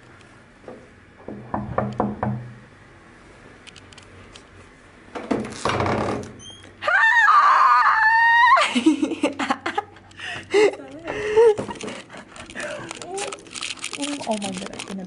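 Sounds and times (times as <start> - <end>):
door opening: 5.1 - 6.8
women shrieking: 6.8 - 8.8
women laughing: 8.1 - 13.2.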